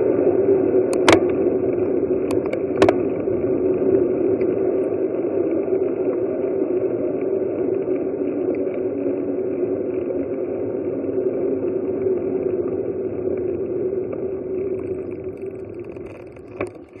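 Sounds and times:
bicycle rolling noise: 0:00.0 - 0:17.0
muffled wind rush: 0:00.0 - 0:17.0
sharp clicks: 0:00.9 - 0:01.4, 0:02.3 - 0:03.0.

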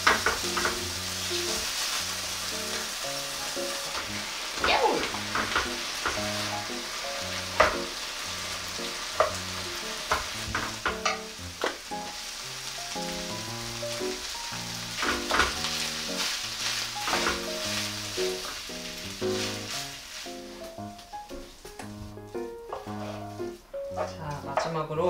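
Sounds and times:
fried rice sizzling in a pan: 0:00.0 - 0:24.5
light background music: 0:02.5 - 0:25.0
spoons knocking against a pan: 0:10.1 - 0:11.8
wooden spoons scraping a pan: 0:13.1 - 0:21.0, 0:22.1 - 0:24.8.

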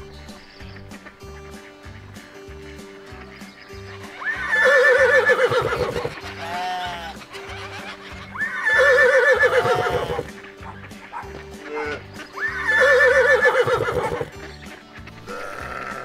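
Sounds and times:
background music with steady beat: 0:00.0 - 0:16.0
horse whinnying: 0:04.2 - 0:07.2, 0:08.4 - 0:10.3, 0:11.8 - 0:14.4, 0:15.3 - 0:16.0.

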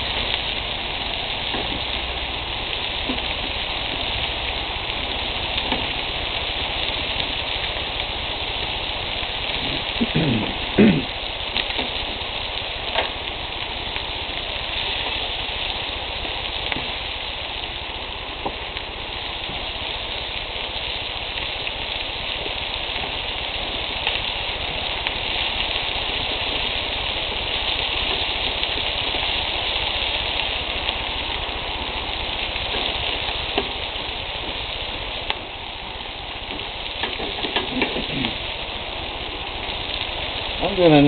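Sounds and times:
meat sizzling on a grill: 0:00.0 - 0:41.0
faint pops: 0:02.9 - 0:04.4, 0:31.8 - 0:40.6.

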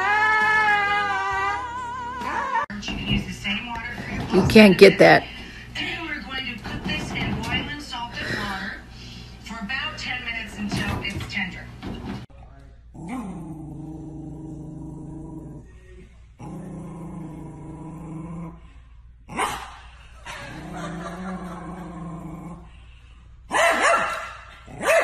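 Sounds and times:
small dog growling: 0:12.9 - 0:18.7, 0:20.3 - 0:22.8
dog barking: 0:19.4 - 0:19.7, 0:23.5 - 0:25.0.

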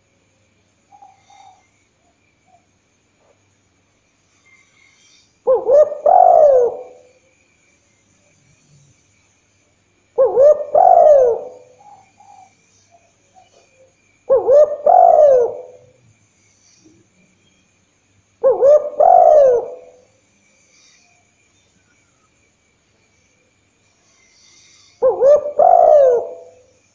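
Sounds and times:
dove cooing: 0:05.5 - 0:07.1, 0:10.2 - 0:12.5, 0:14.3 - 0:16.0, 0:18.4 - 0:20.0, 0:25.0 - 0:26.7.

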